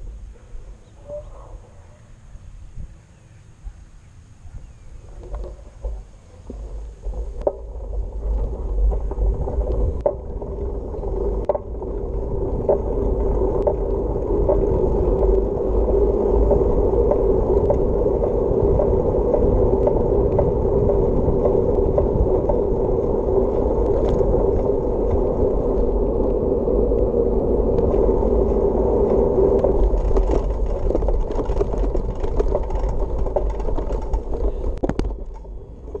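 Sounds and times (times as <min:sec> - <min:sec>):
wheels rolling over asphalt: 0:00.0 - 0:36.0
wind rumbling on microphone: 0:00.0 - 0:36.0
small knocks from bumps: 0:29.0 - 0:36.0.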